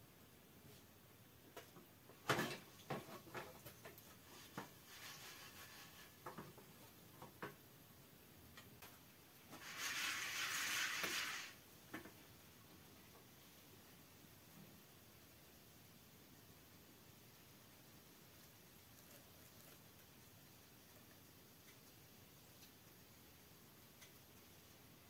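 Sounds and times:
hissing rattle: 9.6 - 11.6.

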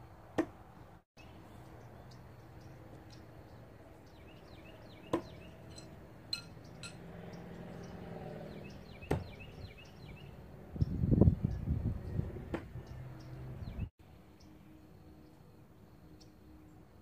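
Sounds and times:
knives striking wooden log: 5.1 - 6.5
light clinks: 5.6 - 7.0.

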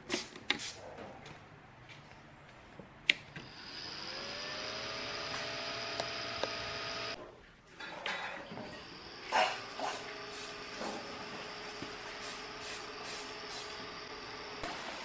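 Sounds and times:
fan and motors whirring: 3.4 - 7.2, 8.8 - 15.0.

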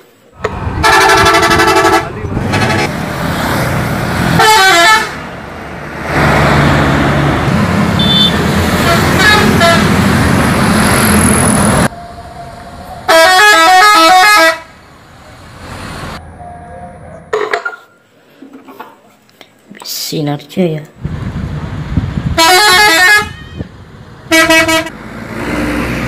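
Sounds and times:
traffic and engine noise: 0.0 - 26.0
musical air horn melody: 0.8 - 2.8, 4.4 - 5.2, 11.9 - 14.7, 22.4 - 23.5, 24.3 - 24.9.

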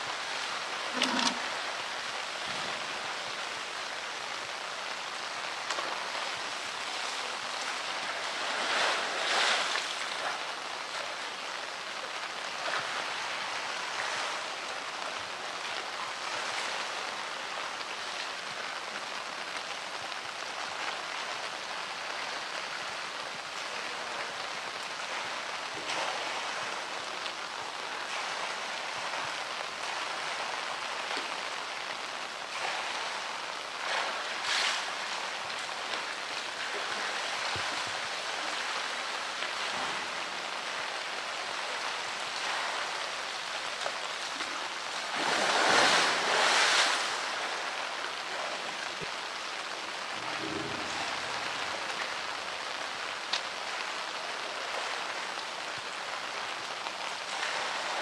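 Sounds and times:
water splashing: 0.0 - 11.4, 24.9 - 55.4
heavy rain on water: 0.0 - 58.0.

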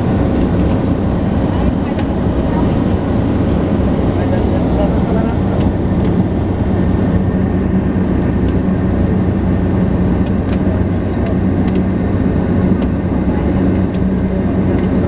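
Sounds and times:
turboprop engine droning: 0.0 - 15.0.

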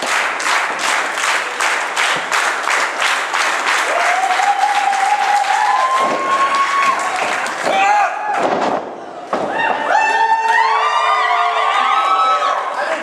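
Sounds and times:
crowd clapping in rhythm: 0.0 - 7.8.

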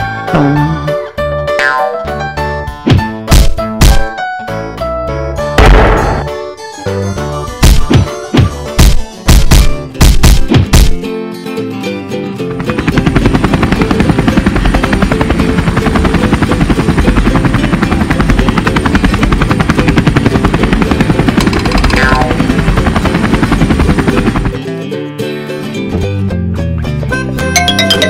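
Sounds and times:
background music: 0.0 - 28.0
helicopter rotor chopping: 12.5 - 24.6.

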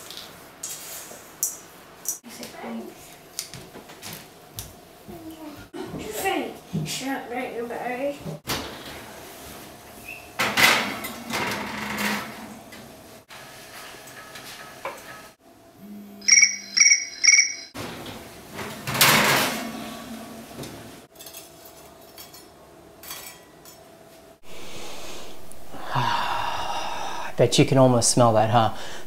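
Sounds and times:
oven timer beeping: 16.2 - 17.8.

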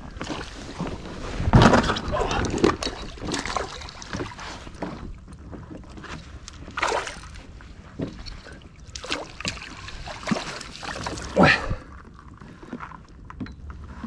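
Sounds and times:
fish splashing at water surface: 2.6 - 4.8, 6.7 - 7.4, 8.8 - 11.4.

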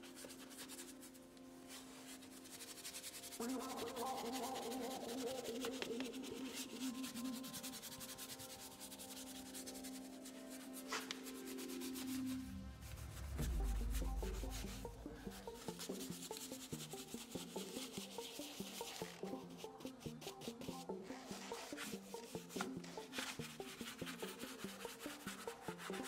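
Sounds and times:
brush scrubbing plastic: 0.0 - 26.0
soft background music: 0.0 - 26.0
deep low swell: 11.3 - 16.3.

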